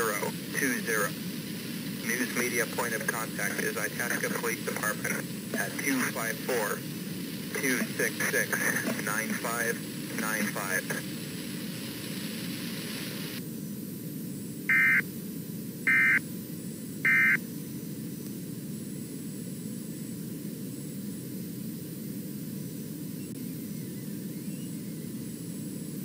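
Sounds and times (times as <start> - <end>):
broadcast static hiss: 0.0 - 26.0
digital data tone bursts: 14.7 - 15.1, 15.9 - 16.2, 17.0 - 17.4.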